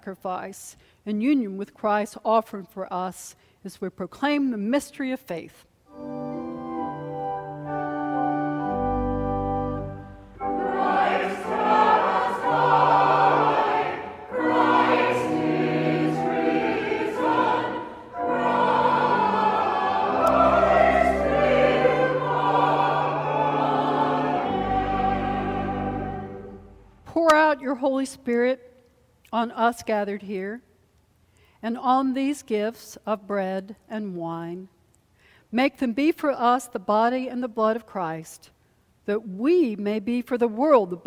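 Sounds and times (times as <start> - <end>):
organ playing chords: 5.9 - 27.0
choir singing: 9.8 - 26.9.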